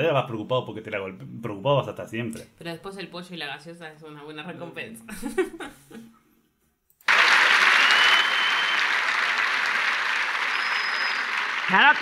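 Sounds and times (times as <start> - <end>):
audience applauding: 7.1 - 12.0.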